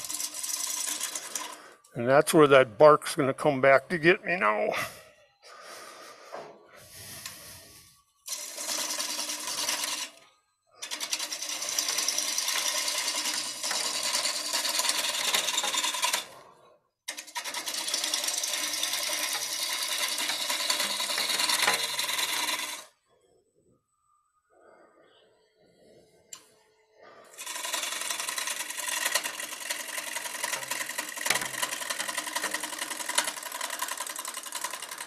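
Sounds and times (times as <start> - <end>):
lathe tool cutting wood: 0.0 - 1.7, 8.3 - 10.2, 10.8 - 16.5, 17.1 - 22.9, 27.3 - 35.0.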